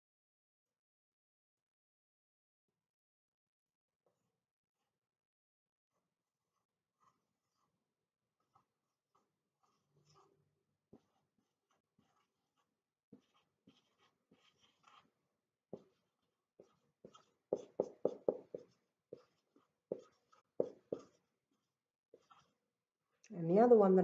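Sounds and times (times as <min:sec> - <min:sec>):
marker strokes on whiteboard: 0:06.4 - 0:07.8, 0:08.4 - 0:22.7.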